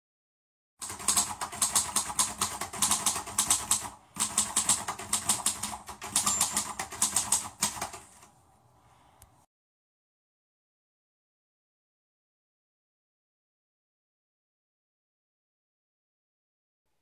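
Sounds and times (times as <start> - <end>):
fast even clicking: 0.8 - 8.3.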